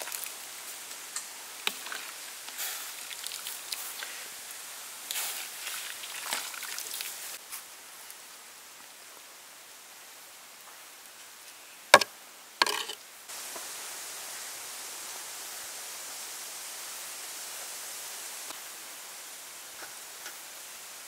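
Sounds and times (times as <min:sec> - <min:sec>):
steady hiss: 0:00.0 - 0:21.0
sharp knock: 0:12.0 - 0:13.0.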